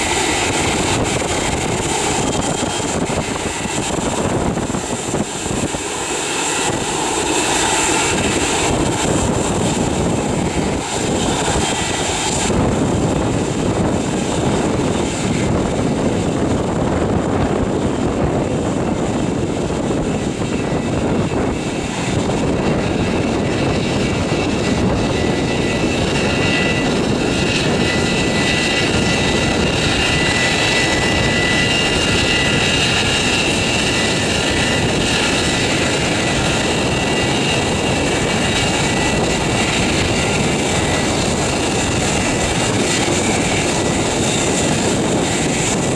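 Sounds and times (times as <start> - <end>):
high engine whine: 0.0 - 45.9
jet engines rushing: 0.0 - 45.9.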